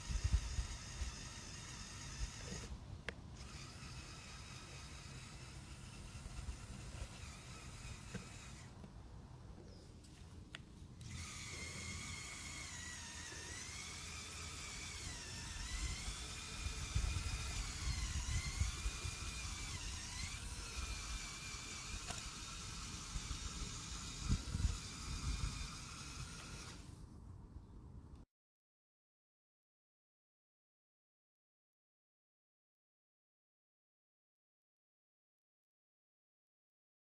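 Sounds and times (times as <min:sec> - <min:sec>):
toy truck electric motors whining: 0:00.0 - 0:08.9, 0:11.0 - 0:27.0.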